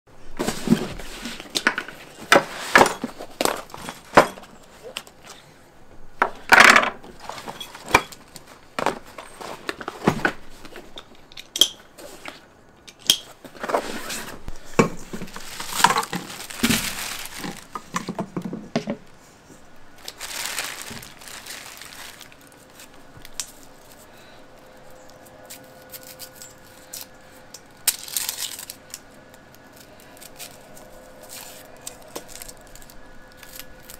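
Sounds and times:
plastic bag rustling: 0:13.5 - 0:33.9.

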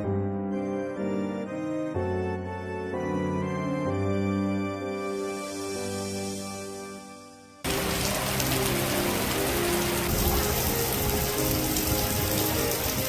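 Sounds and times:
organ music: 0:00.0 - 0:13.0
heavy rain on wet pavement: 0:07.7 - 0:13.0.

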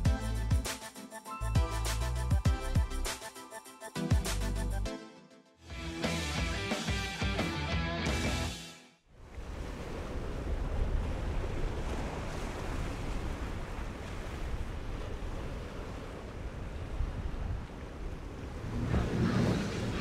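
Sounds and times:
surf and waves: 0:09.1 - 0:20.0
wind buffeting microphone: 0:09.3 - 0:20.0.

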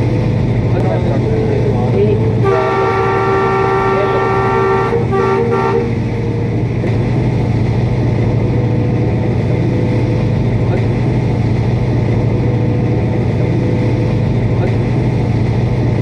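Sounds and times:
locomotive engine drone: 0:00.0 - 0:16.0
locomotive horn chord: 0:02.0 - 0:06.8.

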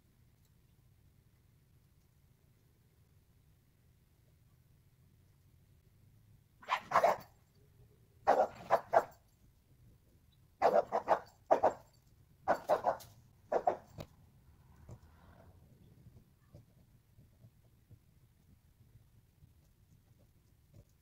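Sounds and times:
dog barking: 0:06.6 - 0:07.2, 0:08.3 - 0:09.2, 0:10.6 - 0:11.8, 0:12.5 - 0:13.9.

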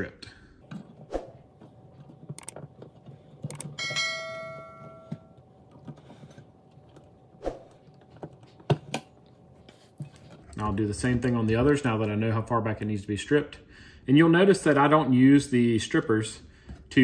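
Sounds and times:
bell-like chime: 0:03.8 - 0:05.3.

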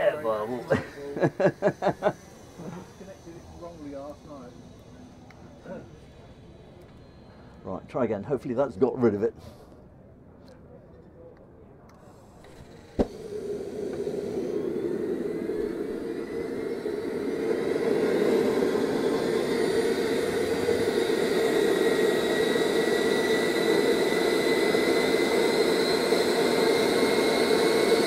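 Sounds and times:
gas turbine whine rising: 0:00.0 - 0:09.4, 0:12.2 - 0:28.0
steady rush: 0:13.1 - 0:28.0.

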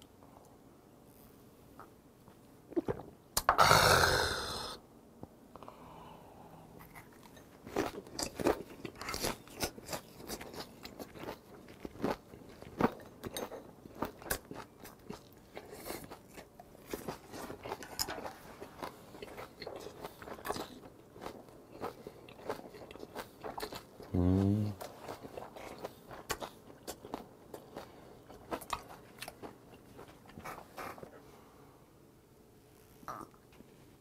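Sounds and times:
close-up chewing and crunching: 0:06.8 - 0:31.3.

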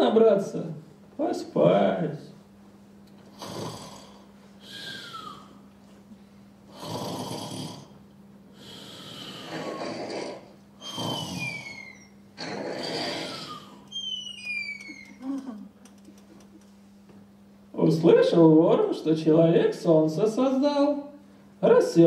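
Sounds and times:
comic rasping snores: 0:03.3 - 0:05.4, 0:06.7 - 0:07.9, 0:08.6 - 0:13.8
falling whistle: 0:10.8 - 0:12.2.

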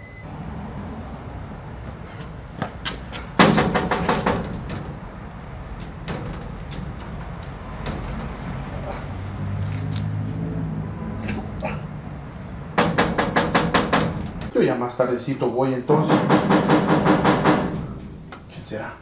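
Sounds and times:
hand banging on metal door: 0:02.1 - 0:09.6, 0:12.2 - 0:14.6, 0:16.0 - 0:18.5.

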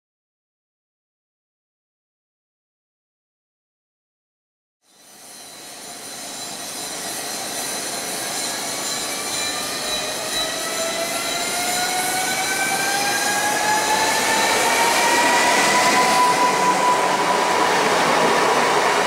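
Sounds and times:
electric train drive whine: 0:04.9 - 0:19.0
train rolling noise: 0:04.9 - 0:19.0.

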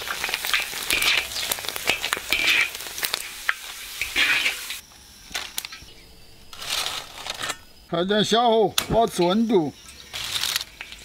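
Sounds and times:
potato slices sizzling in oil: 0:00.0 - 0:05.8, 0:09.7 - 0:11.0.

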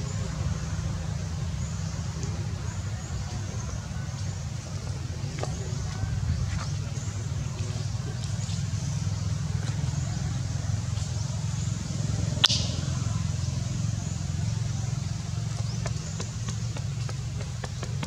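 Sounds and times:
low outdoor rumble: 0:00.0 - 0:18.0
sharp click: 0:12.4 - 0:12.8.

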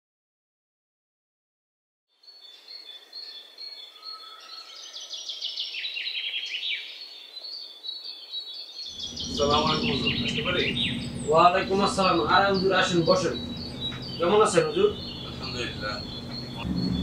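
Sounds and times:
birds chirping: 0:02.2 - 0:17.0
steady background hiss: 0:08.9 - 0:17.0.

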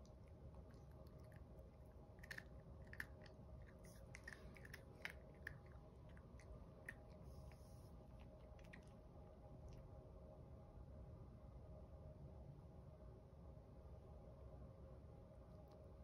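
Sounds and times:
puppy crunching kibble: 0:00.0 - 0:09.9.

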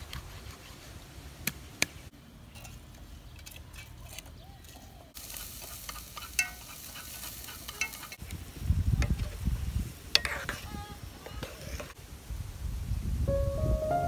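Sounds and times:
wooden utensil stirring in pot: 0:03.4 - 0:08.2, 0:10.2 - 0:12.0
sizzling hiss: 0:05.1 - 0:14.0.

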